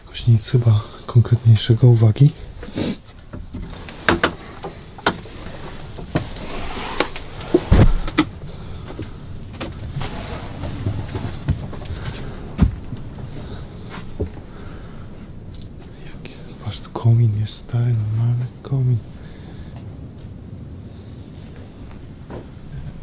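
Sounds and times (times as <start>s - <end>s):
knocks and clatter: 3.3s - 6.4s
heavy thump: 7.5s - 8.3s.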